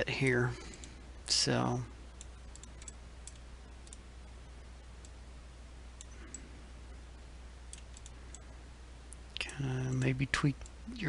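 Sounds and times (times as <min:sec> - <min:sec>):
steady low hum: 0:00.0 - 0:11.0
mouse and keyboard clicks: 0:02.2 - 0:04.0.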